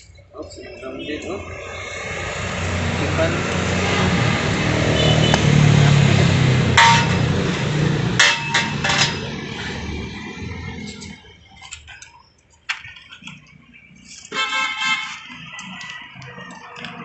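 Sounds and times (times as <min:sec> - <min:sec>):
passing vehicle engine hum: 0:00.5 - 0:11.6.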